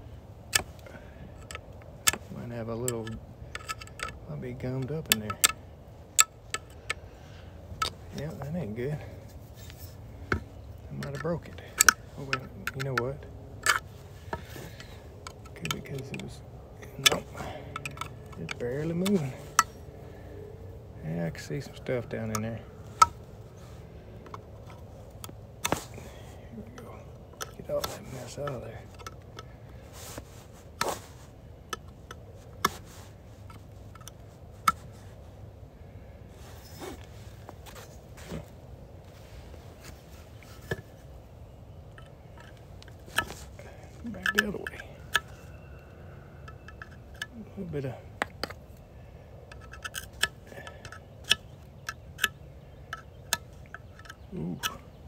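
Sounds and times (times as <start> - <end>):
hand tool clicking and scraping metal: 0.5 - 7.0, 7.8 - 20.1, 21.1 - 35.1, 41.9 - 45.8, 46.4 - 48.6, 49.5 - 55.0
sharp metallic clicks: 10.9 - 20.0, 49.5 - 55.0.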